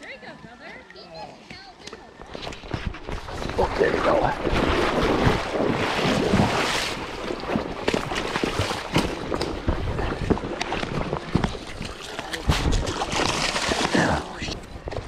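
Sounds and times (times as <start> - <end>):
wind buffeting microphone: 2.2 - 13.3
river water splashing and rushing: 2.9 - 15.0.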